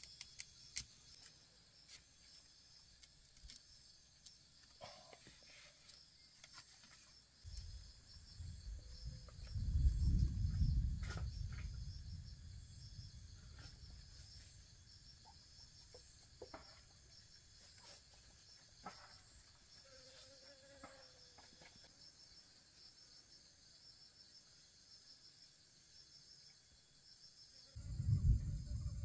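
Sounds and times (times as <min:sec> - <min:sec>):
insects chirping: 0:00.0 - 0:29.0
low rumble: 0:27.8 - 0:29.0.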